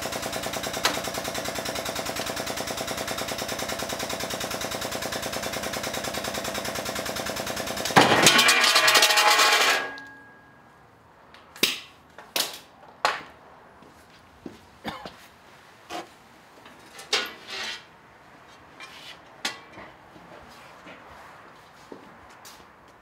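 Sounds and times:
workshop machine rattling: 0:00.0 - 0:10.3.

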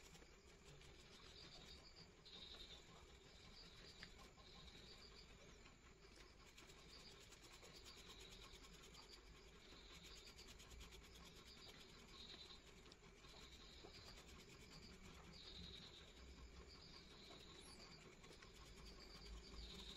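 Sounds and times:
pencil scratching on paper: 0:00.0 - 0:05.0, 0:06.1 - 0:19.9.

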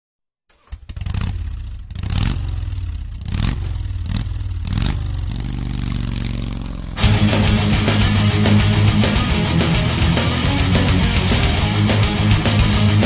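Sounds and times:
motorcycle engine revving: 0:00.5 - 0:13.0.

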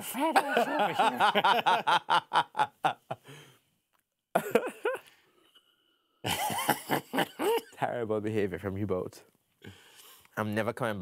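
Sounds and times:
man laughing hard: 0:00.0 - 0:03.2, 0:04.4 - 0:05.0, 0:06.3 - 0:07.7
man talking: 0:07.8 - 0:09.3, 0:10.4 - 0:11.0.

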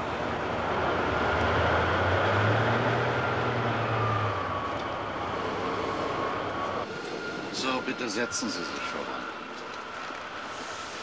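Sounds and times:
train rumbling past: 0:00.0 - 0:11.0
faint high whine: 0:06.6 - 0:11.0.

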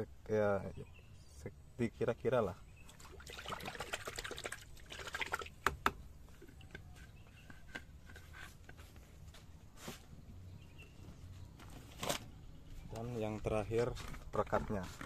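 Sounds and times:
water swirled in bucket: 0:02.8 - 0:05.6.

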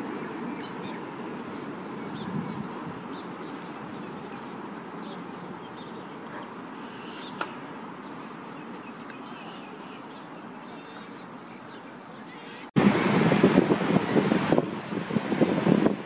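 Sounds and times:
outdoor background noise: 0:00.0 - 0:16.0
faint bird calls: 0:05.2 - 0:12.7.

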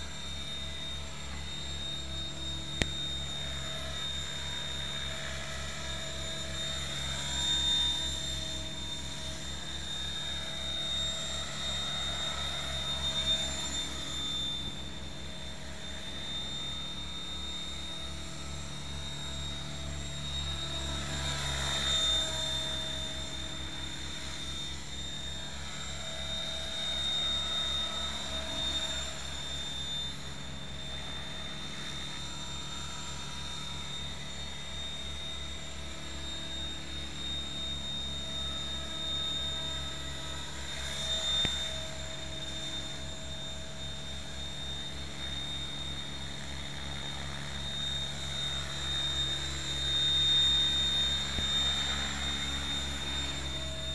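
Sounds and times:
rc helicopter motor and rotors whine: 0:00.0 - 0:53.9.

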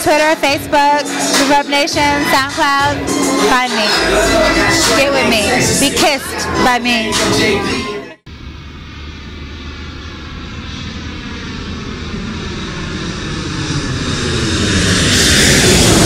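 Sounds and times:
rushing jet-like rumble: 0:08.3 - 0:16.0.

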